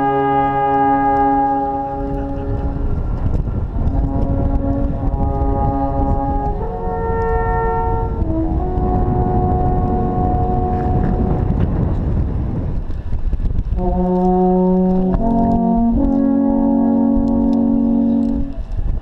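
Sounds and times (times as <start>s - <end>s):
alphorns playing in harmony: 0.0s - 3.1s, 14.0s - 18.6s.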